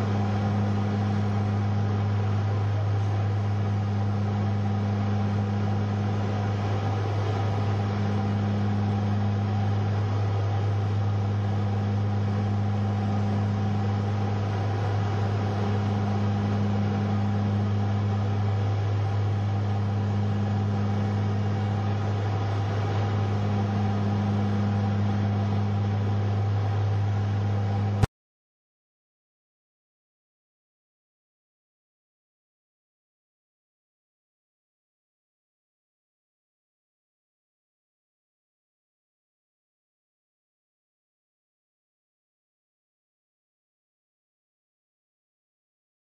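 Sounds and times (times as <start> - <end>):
propeller aircraft cabin drone: 0.0 - 28.1.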